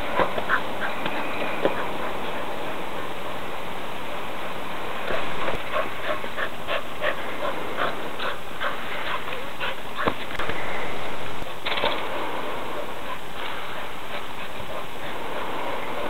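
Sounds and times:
dog panting: 0:00.0 - 0:03.3, 0:05.0 - 0:10.4, 0:13.0 - 0:16.0.

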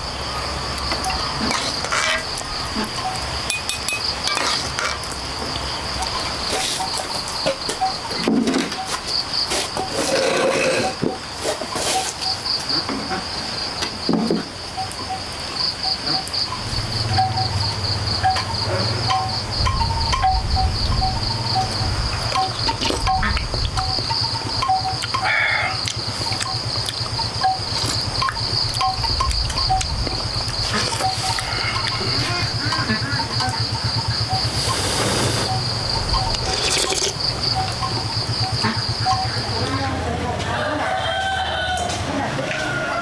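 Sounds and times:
insects trilling: 0:00.0 - 0:43.0
low rumble: 0:19.0 - 0:24.0, 0:28.0 - 0:32.6.

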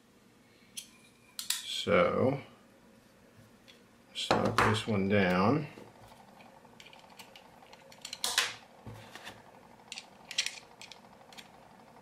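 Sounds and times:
small metal parts handled: 0:09.9 - 0:11.4.

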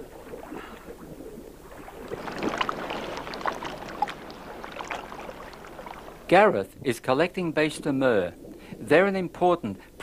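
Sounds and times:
water sloshing and splashing: 0:00.0 - 0:06.5.

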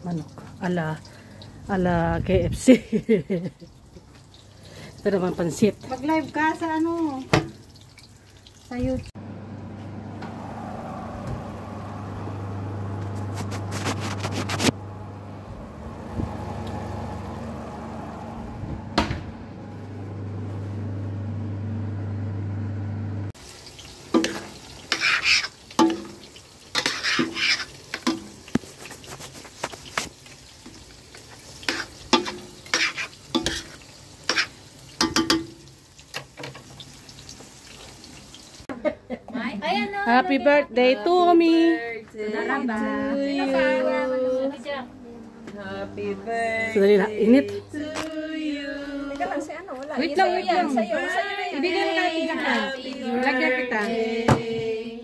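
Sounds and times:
low hum: 0:09.2 - 0:23.4
utensil scraping noodles in pot: 0:13.0 - 0:14.8, 0:24.2 - 0:25.6, 0:26.7 - 0:30.1, 0:31.2 - 0:34.6.

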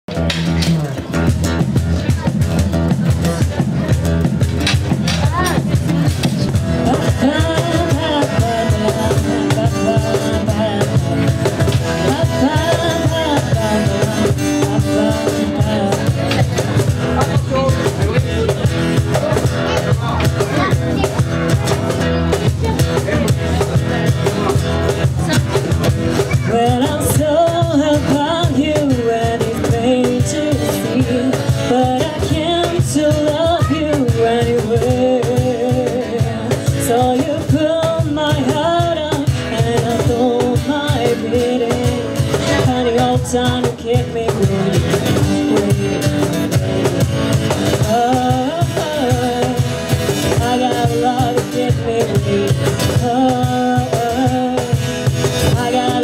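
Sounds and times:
cajon beat: 0:00.0 - 0:56.0
strummed acoustic guitar: 0:00.1 - 0:56.0
woman singing through a pa: 0:05.6 - 0:16.8, 0:25.8 - 0:56.0.

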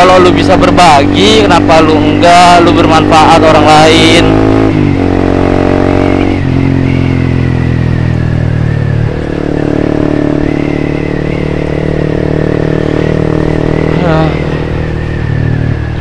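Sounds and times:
motorcycle engine running: 0:00.0 - 0:16.0.

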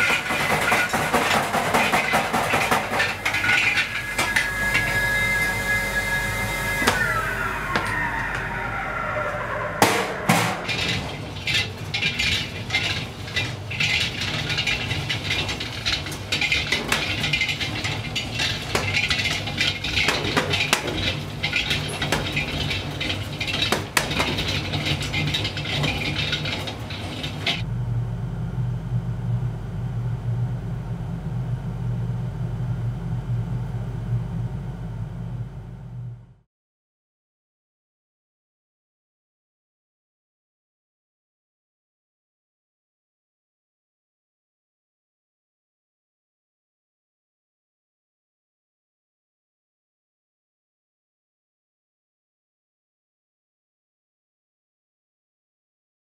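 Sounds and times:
low motor hum: 0:27.6 - 0:36.4.

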